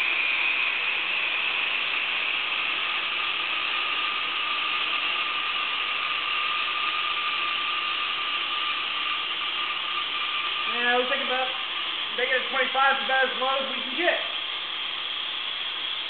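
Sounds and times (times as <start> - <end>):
pump motor whining: 0.0 - 16.0.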